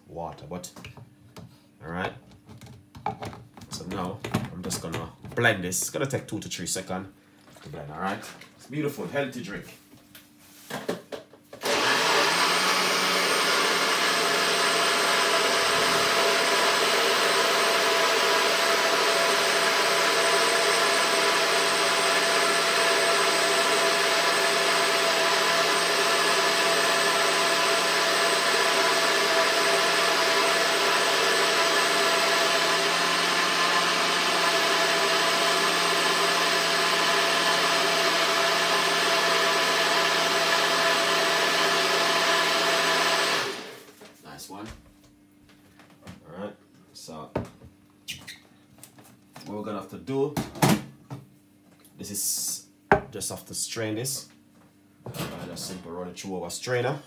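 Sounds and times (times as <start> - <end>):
electric blender running: 11.6 - 43.9.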